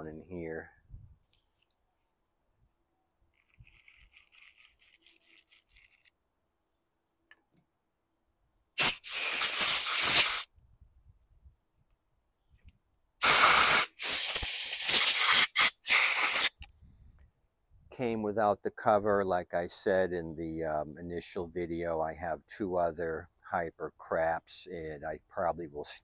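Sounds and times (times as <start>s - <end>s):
compressed air hissing: 8.8s - 10.5s, 13.2s - 16.5s.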